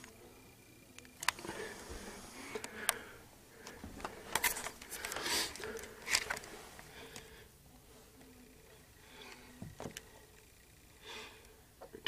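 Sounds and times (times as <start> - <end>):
hand rubbing and brushing: 4.0 - 7.0.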